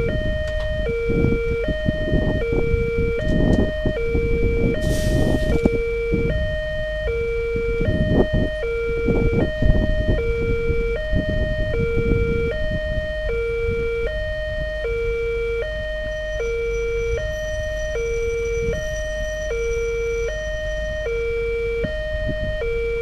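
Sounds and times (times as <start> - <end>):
level crossing two-tone alarm: 0.0 - 23.0.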